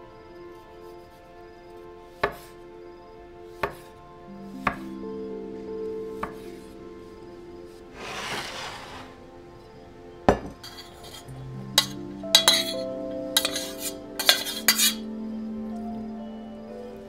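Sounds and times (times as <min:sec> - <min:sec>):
soft background music: 0:00.0 - 0:17.0
spoon scraping metal pot: 0:08.0 - 0:09.2, 0:10.6 - 0:12.8, 0:13.4 - 0:15.0.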